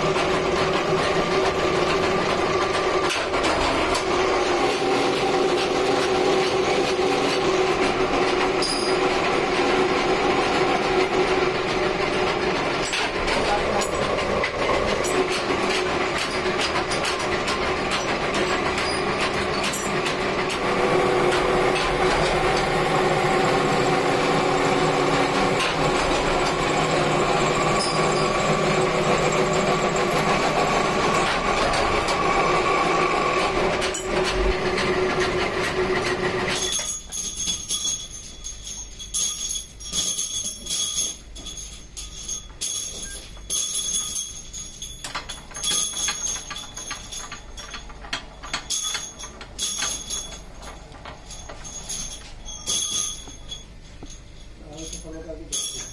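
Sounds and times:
drill press motor hum: 0.0 - 36.9
metal clinks and clatter: 0.1 - 9.7, 10.3 - 20.7, 25.2 - 30.4, 33.4 - 55.9.

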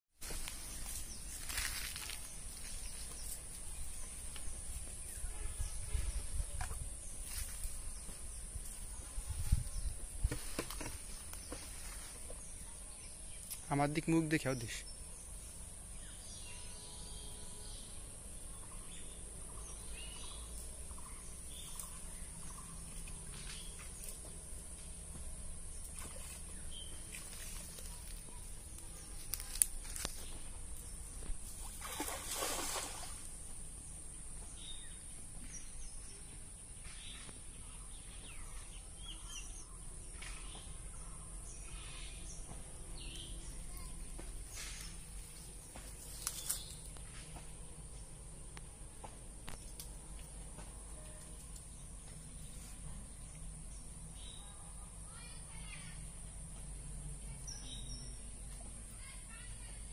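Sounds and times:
birds chirping: 0.2 - 48.7
low outdoor rumble: 39.6 - 59.6.

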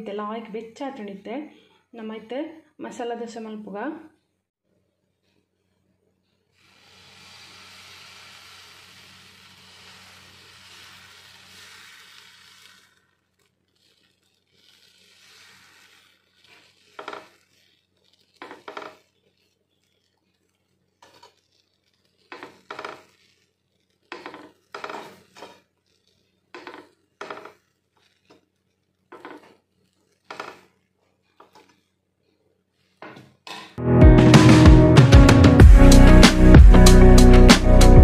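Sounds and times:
steady hiss: 6.5 - 28.4.

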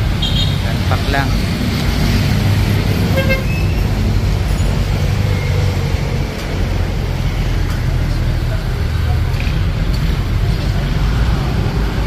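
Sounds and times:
road traffic engine rumble: 0.0 - 12.0.

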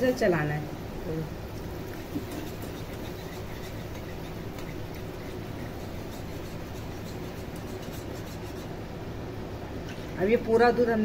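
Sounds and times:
steady low hum: 0.0 - 11.0
whisk clicking against saucepan: 1.8 - 8.8.

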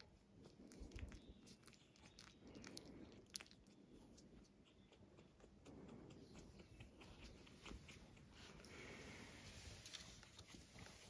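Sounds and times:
puppy licking and mouthing: 0.0 - 8.6.

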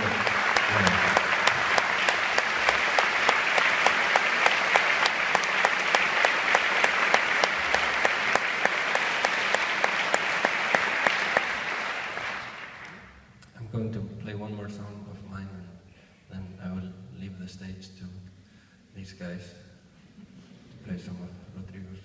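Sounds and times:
audience applauding: 0.0 - 13.2
close loud hand claps: 0.0 - 13.2.

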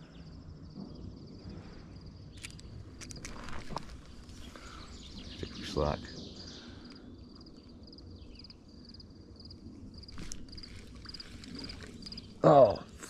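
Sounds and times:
insect chirping: 0.0 - 13.0.

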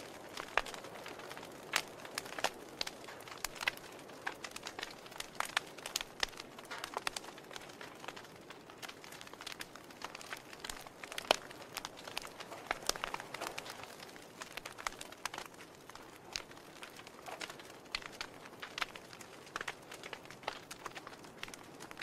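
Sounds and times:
wood fire crackling: 0.0 - 22.0.

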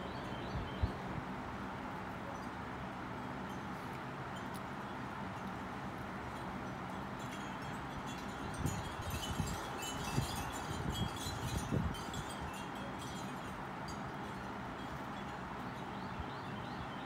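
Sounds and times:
metallic tinkling: 6.2 - 16.6.

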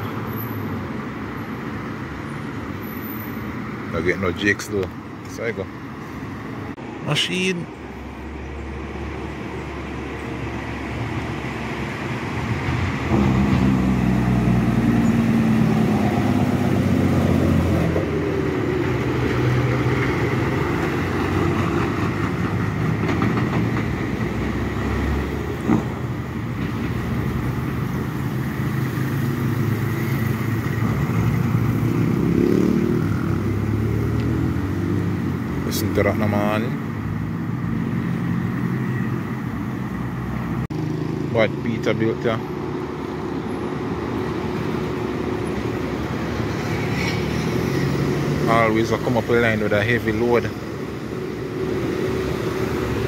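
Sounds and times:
dump truck diesel engine: 10.8 - 35.6.

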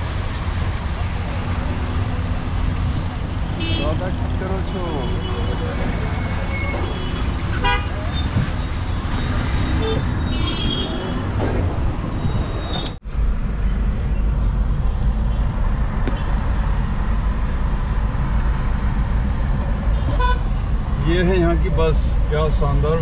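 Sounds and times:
traffic rumble inside moving car: 0.0 - 23.0
car horn toot: 3.6 - 4.0, 6.5 - 8.0, 9.8 - 11.2.

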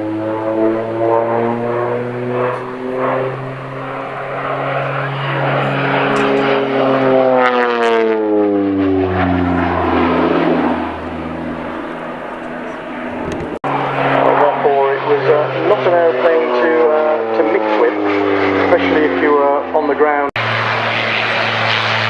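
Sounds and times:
turboprop aircraft droning: 0.0 - 22.0.

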